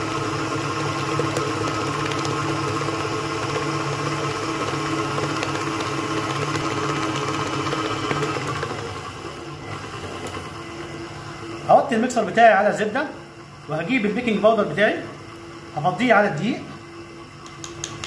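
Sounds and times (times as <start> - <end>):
beater whipping batter in metal bowl: 0.0 - 10.6
stand mixer motor running: 0.0 - 18.0.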